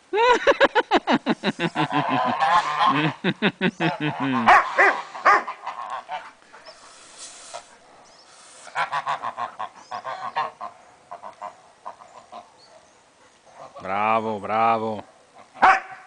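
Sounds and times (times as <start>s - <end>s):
geese honking: 1.7s - 3.2s, 3.8s - 12.6s.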